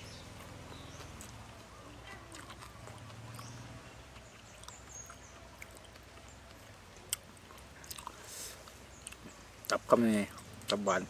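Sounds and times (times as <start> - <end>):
soft chewing mouth sounds: 0.2 - 10.8.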